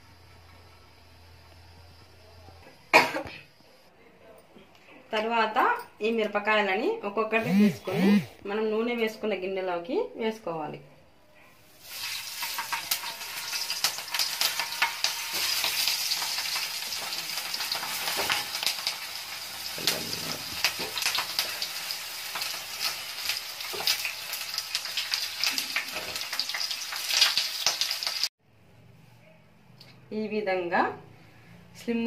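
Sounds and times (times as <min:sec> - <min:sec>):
chillies sizzling in hot oil: 0:11.7 - 0:28.3.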